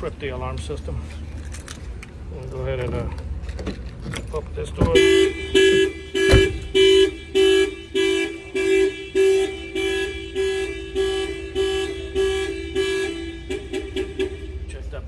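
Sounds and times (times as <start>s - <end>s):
car horn honking: 4.6s - 15.0s.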